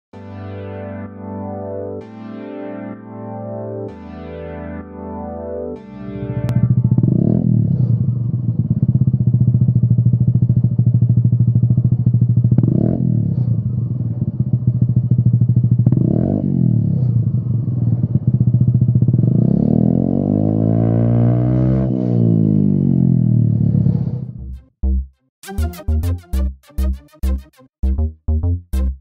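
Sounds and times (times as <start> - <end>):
scooter engine idling and revving: 6.4 - 24.6.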